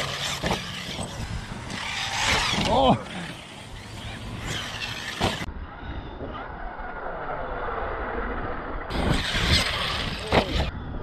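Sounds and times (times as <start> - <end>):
electric motor whining: 0.0 - 5.5.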